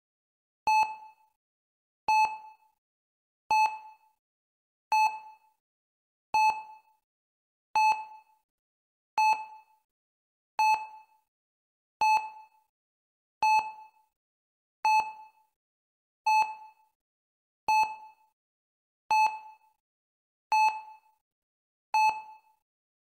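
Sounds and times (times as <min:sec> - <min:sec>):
heart rate monitor beeping: 0:00.7 - 0:01.1, 0:03.5 - 0:03.9, 0:04.9 - 0:05.3, 0:06.4 - 0:06.8, 0:07.8 - 0:08.2, 0:09.2 - 0:09.5, 0:10.6 - 0:11.0, 0:12.0 - 0:12.4, 0:13.4 - 0:13.8, 0:14.8 - 0:15.2, 0:16.3 - 0:16.6, 0:19.1 - 0:19.5, 0:20.5 - 0:21.1, 0:22.0 - 0:22.4.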